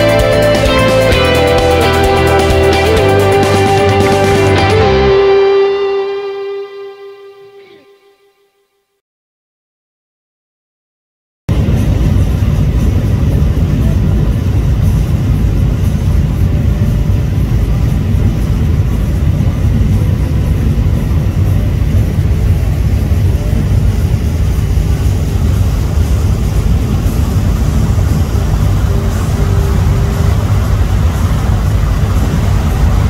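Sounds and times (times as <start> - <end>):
ship engine droning: 0.0 - 8.0, 11.5 - 33.0
rush of water and air: 11.5 - 33.0.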